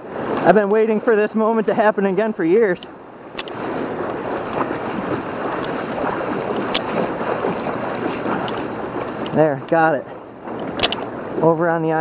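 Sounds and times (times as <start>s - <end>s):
water splashing as someone wades: 0.0s - 12.0s
sharp clicks: 2.8s - 3.6s, 6.6s - 7.0s, 10.6s - 11.1s.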